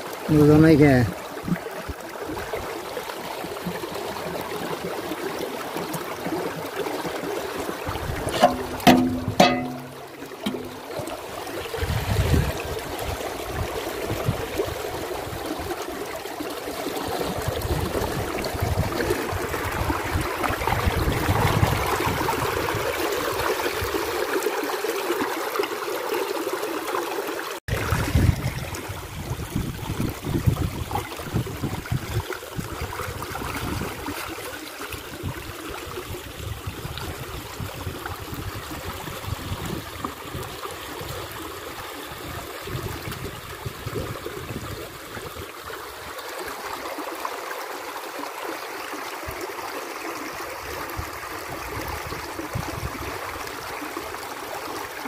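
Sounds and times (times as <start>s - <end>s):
shallow water splashing: 3.4s - 24.2s.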